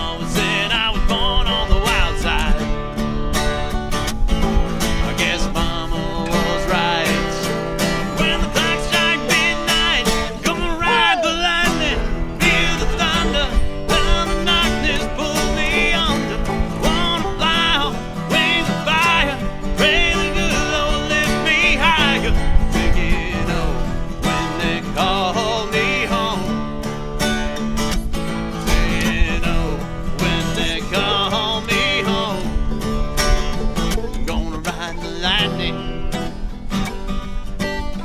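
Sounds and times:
bluegrass string band playing: 12.0s - 22.0s.

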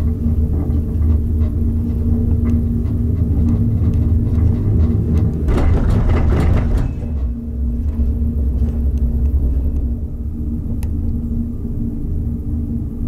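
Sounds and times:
rattling clatter: 0.0s - 8.8s
gondola cabin rumble and hum: 0.0s - 13.0s.

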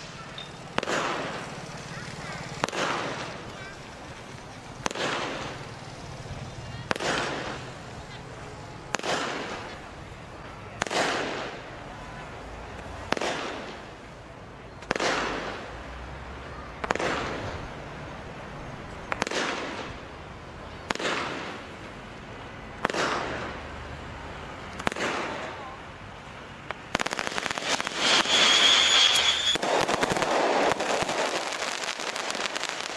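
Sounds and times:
firework bangs with hiss: 0.0s - 32.9s
rapid firework crackling: 0.0s - 32.9s
high firework whistle: 26.9s - 32.9s.

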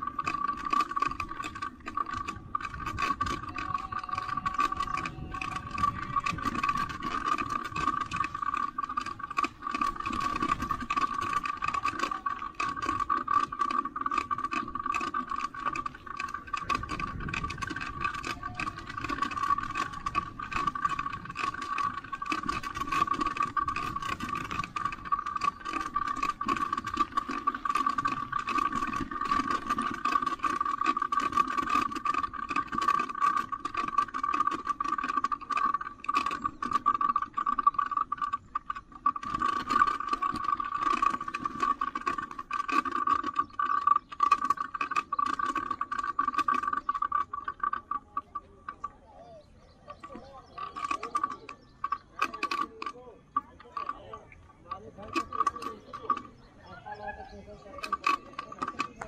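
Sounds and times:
bicycle rattling and clicking: 0.0s - 59.0s.

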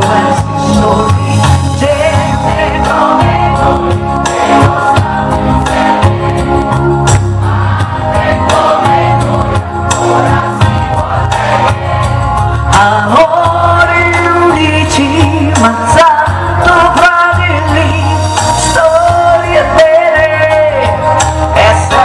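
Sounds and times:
bass line: 0.0s - 22.0s
drum beats: 0.0s - 22.0s
woman singing into a microphone: 12.7s - 20.9s.

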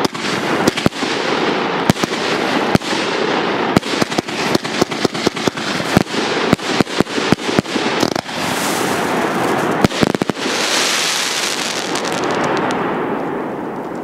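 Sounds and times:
firework bangs: 0.0s - 13.6s
firework fizzing crackle: 3.8s - 12.8s.

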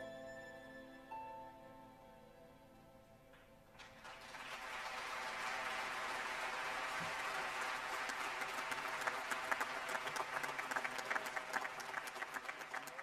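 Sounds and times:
audience applause: 3.8s - 13.0s.

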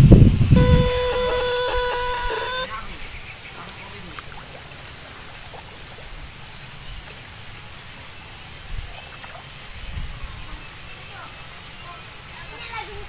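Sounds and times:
steady high whine: 0.6s - 2.7s.

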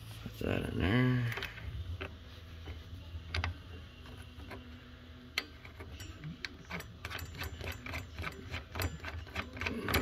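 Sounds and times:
metallic clicks of bolts: 5.3s - 10.0s.

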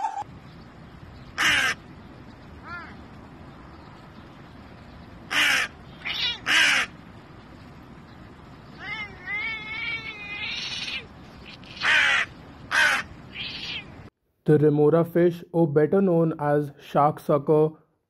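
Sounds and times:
crow cawing: 1.4s - 1.8s, 5.3s - 7.0s, 8.8s - 13.9s.

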